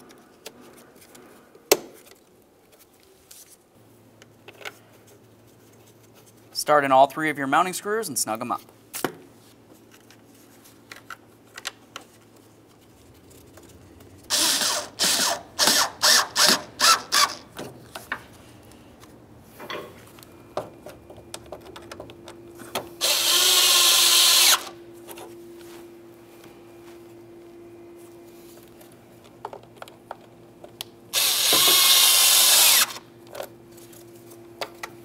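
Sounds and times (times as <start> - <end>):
cordless drill driving screws: 14.3 - 17.4, 23.0 - 24.7, 31.2 - 33.0.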